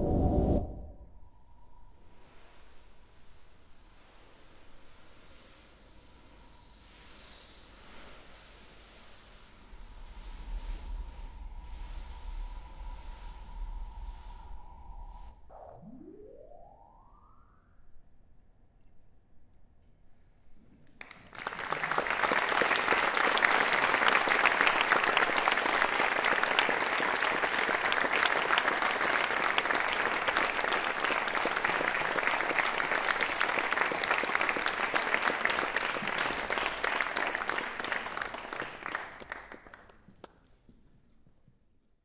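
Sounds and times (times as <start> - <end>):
audience applauding: 21.0 - 40.4.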